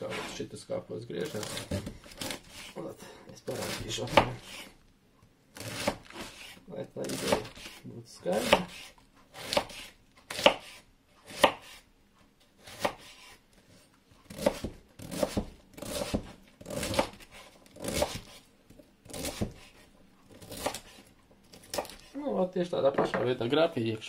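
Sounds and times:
knife cutting cabbage on wooden board: 1.2 - 2.8, 3.4 - 4.8, 5.5 - 11.9, 12.6 - 22.2.

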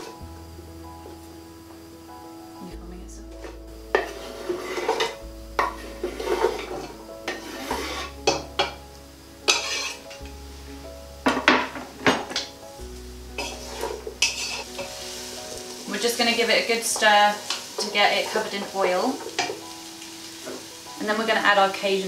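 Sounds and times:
background music with bass: 0.0 - 17.6
wooden spoon stirring in pot: 3.2 - 8.8, 9.4 - 21.6
knife scraping on chopping board: 6.1 - 8.2, 9.5 - 10.0.

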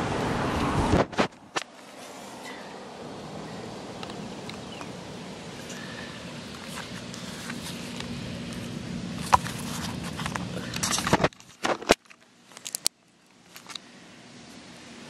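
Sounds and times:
low hum: 0.0 - 11.3.

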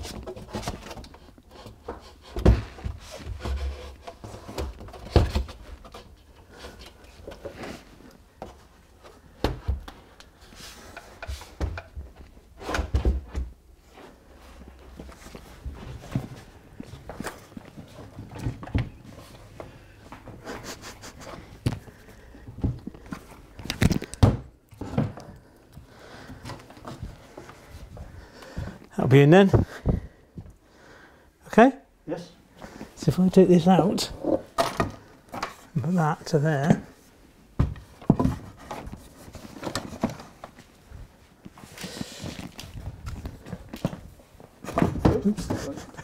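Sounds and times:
clothing rustle and shuffling: 2.6 - 24.2, 24.8 - 30.6, 35.0 - 46.0
wooden board knocks and thumps: 37.6 - 38.8.

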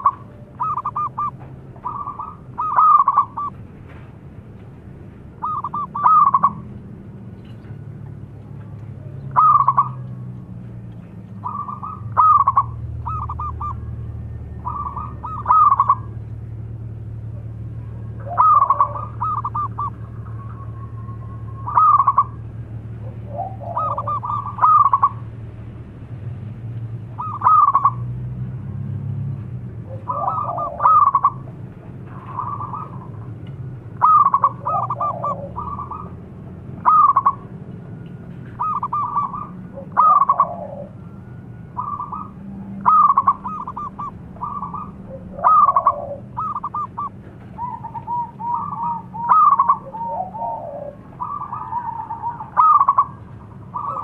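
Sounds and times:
dove cooing: 0.0 - 3.6, 5.4 - 6.7, 9.0 - 10.2, 11.4 - 16.2, 17.9 - 25.3, 27.1 - 28.2, 29.8 - 37.6, 38.4 - 54.0.

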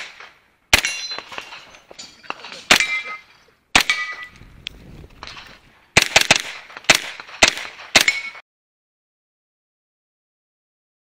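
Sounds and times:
carbine gunshots: 0.0 - 4.3, 5.2 - 8.4
ring of hit steel targets: 0.8 - 4.4, 7.9 - 8.4.

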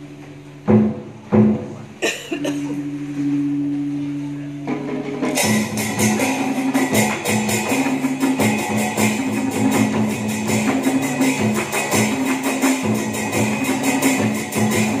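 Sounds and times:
plucked lutes: 0.0 - 15.0
drums and cymbals struck rapidly: 4.7 - 15.0.

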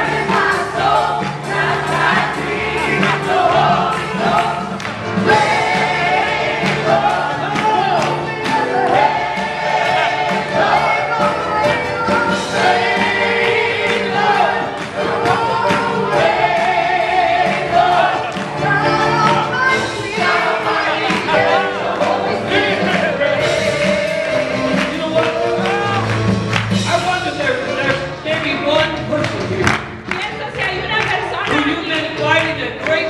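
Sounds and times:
group singing: 0.0 - 26.6
band with drums: 0.0 - 33.0
hand-clapping: 3.0 - 12.7, 13.4 - 16.4, 17.5 - 19.5, 23.7 - 33.0.

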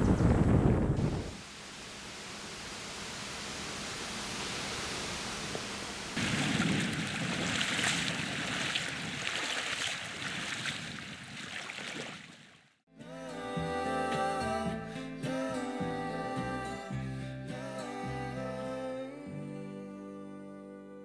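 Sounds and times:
flowing river water: 6.1 - 12.8.

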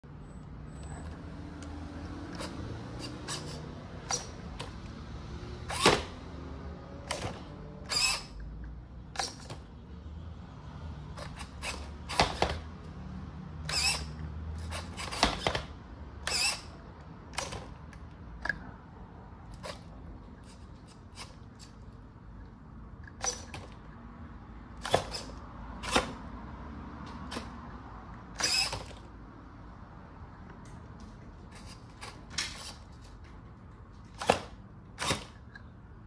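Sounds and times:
servo whirring: 0.8 - 8.5, 9.1 - 9.7, 11.1 - 12.9, 13.6 - 18.6, 19.4 - 22.0, 23.0 - 23.9, 24.7 - 26.3, 27.3 - 27.6, 28.3 - 29.1, 34.1 - 35.6.

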